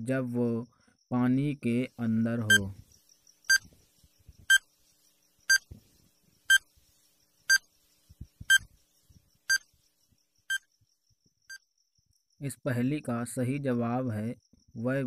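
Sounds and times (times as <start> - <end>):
short high-pitched beeps: 2.4 - 2.7, 3.5 - 3.7, 4.5 - 4.7, 5.5 - 5.7, 7.5 - 7.7, 8.5 - 8.7, 9.5 - 9.7.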